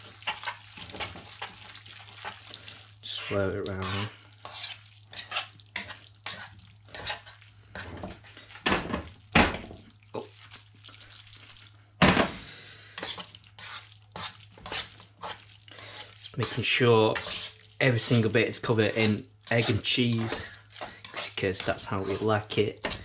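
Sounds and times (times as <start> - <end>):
metal tongs scraping frying pan: 3.1 - 8.2, 13.0 - 23.0.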